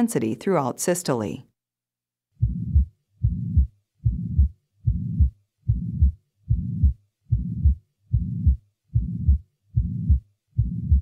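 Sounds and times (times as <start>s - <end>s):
heart murmur: 2.4s - 11.0s
heart sounds: 2.4s - 11.0s.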